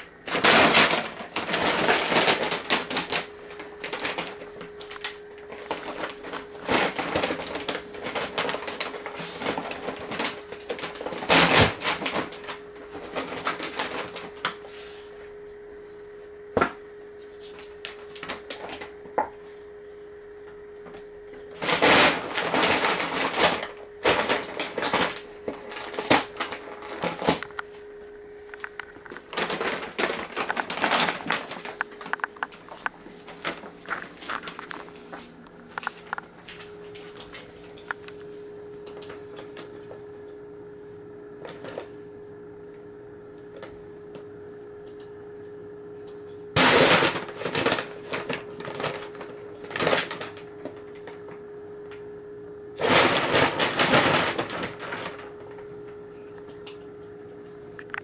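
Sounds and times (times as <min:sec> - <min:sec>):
paper bag rustling and crinkling: 0:00.0 - 0:15.4, 0:17.2 - 0:38.4, 0:41.4 - 0:42.0, 0:46.6 - 0:51.5, 0:52.8 - 0:56.6
steady hum: 0:00.0 - 0:58.0.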